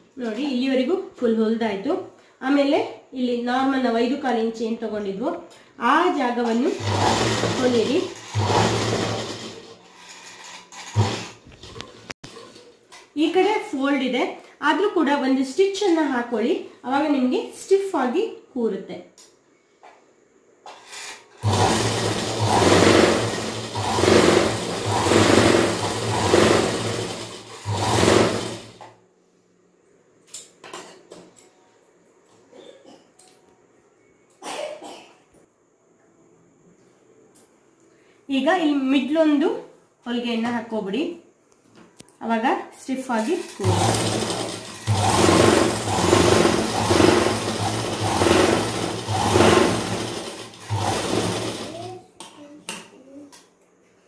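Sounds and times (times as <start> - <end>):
sewing machine stitching: 6.5 - 12.7, 20.9 - 28.8, 43.2 - 52.0.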